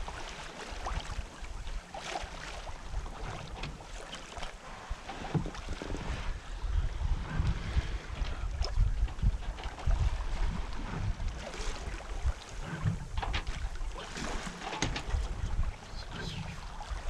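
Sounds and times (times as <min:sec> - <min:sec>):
water splashing along hull: 0:00.0 - 0:17.0
wind buffeting microphone: 0:04.8 - 0:17.0.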